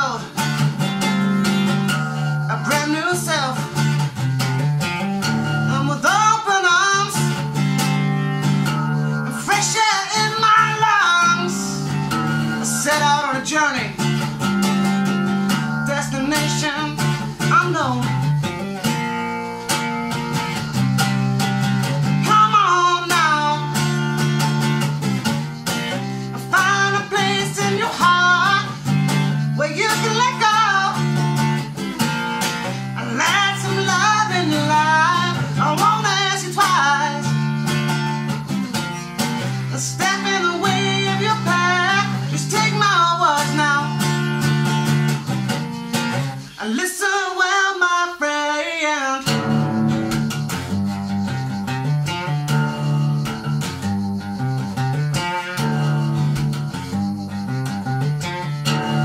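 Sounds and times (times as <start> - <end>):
man singing: 0.0 - 0.7, 2.2 - 4.2, 5.6 - 18.6, 21.9 - 51.6
acoustic guitar strumming: 0.0 - 59.0.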